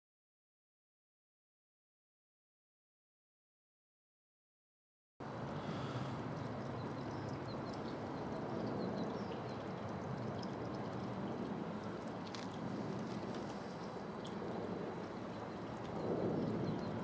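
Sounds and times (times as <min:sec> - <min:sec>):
rumbling background noise: 0:05.2 - 0:17.0.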